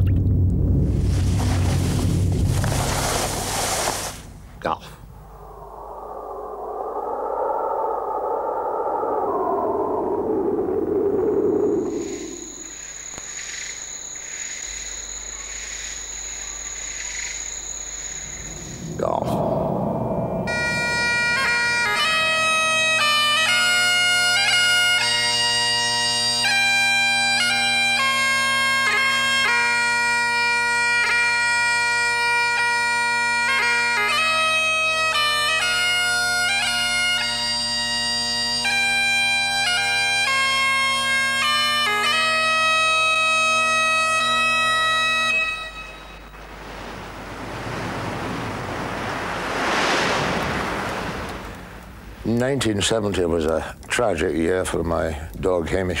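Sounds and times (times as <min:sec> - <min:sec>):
rush of noise: 0:00.0 - 0:13.2, 0:17.4 - 0:23.2, 0:45.8 - 0:52.3
bagpipes playing: 0:20.5 - 0:46.3.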